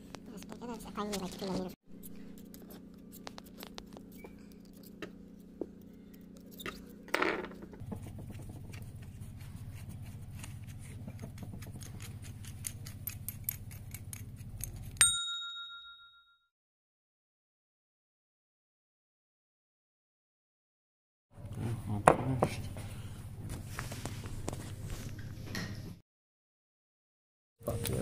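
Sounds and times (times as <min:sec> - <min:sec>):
steady low hum: 0:00.0 - 0:15.0
small metallic clicks and scrapes: 0:10.0 - 0:15.0
sharp metallic clink: 0:15.0 - 0:16.2.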